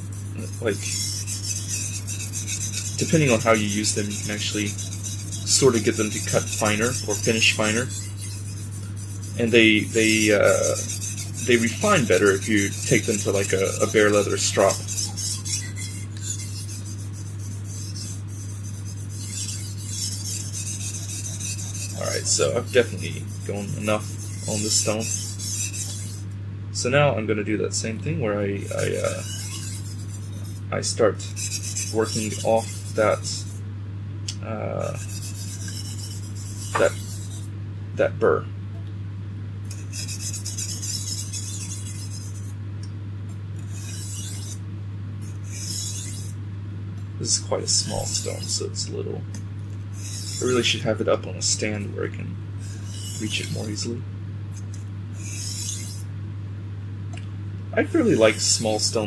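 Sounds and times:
knife scraping on whetstone: 0:00.0 - 0:26.3, 0:28.6 - 0:33.6, 0:34.8 - 0:37.5, 0:39.7 - 0:42.6, 0:43.6 - 0:44.6, 0:45.2 - 0:46.4, 0:47.3 - 0:48.8, 0:49.9 - 0:50.9, 0:52.6 - 0:56.1, 0:57.9 - 0:59.0
steady low hum: 0:00.0 - 0:59.0.

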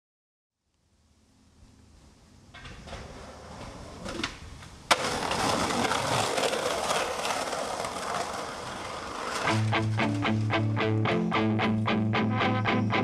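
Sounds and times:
skateboard wheels rolling on concrete: 0:01.2 - 0:13.0
skateboard hitting concrete ledge: 0:02.6 - 0:10.2
skateboard grinding along ledge: 0:02.6 - 0:10.8.

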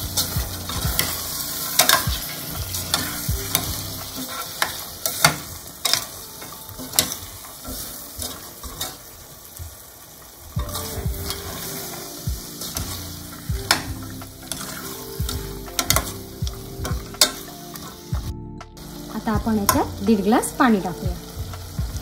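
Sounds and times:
masala sizzling: 0:00.0 - 0:22.0
metal spoon scraping a pot: 0:13.7 - 0:16.2.

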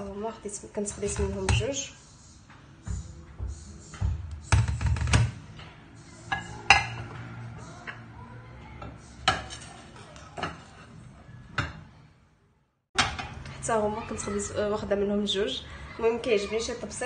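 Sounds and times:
ceramic plates clinking: 0:06.3 - 0:07.2, 0:09.2 - 0:11.8.

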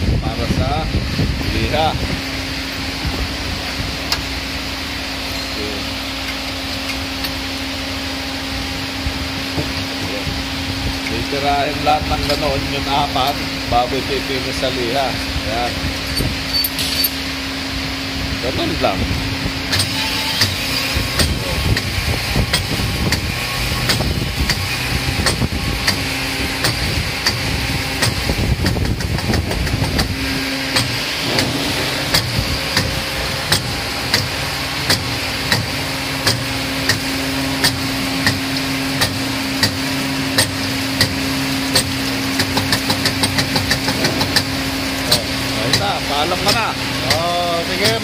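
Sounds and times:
regular mechanical click: 0:40.4 - 0:48.0.

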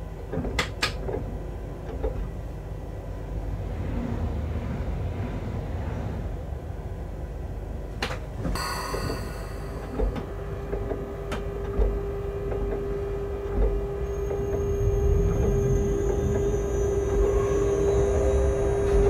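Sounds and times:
locomotive running rumble: 0:00.0 - 0:19.0
steady mid-pitched hum: 0:08.6 - 0:16.0.

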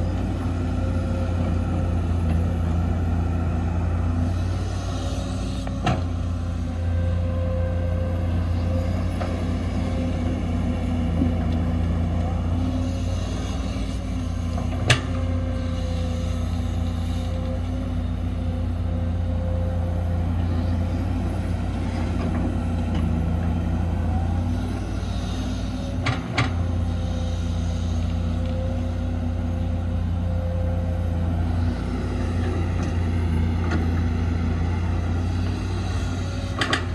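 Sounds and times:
diesel engine droning: 0:00.0 - 0:36.9.

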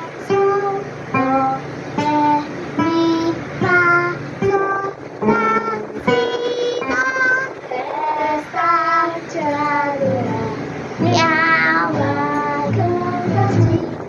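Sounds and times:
girl singing a simple melody: 0:00.0 - 0:14.0.

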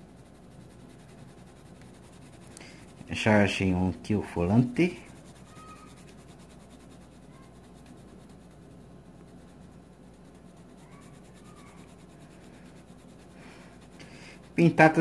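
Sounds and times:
pencil scratching on paper: 0:00.0 - 0:15.0.

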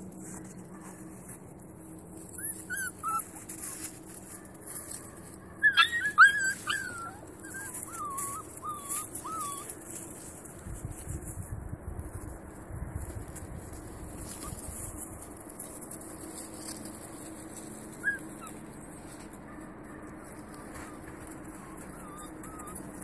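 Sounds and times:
puppies whining and yipping: 0:02.0 - 0:10.3, 0:14.1 - 0:15.1, 0:16.4 - 0:23.0.

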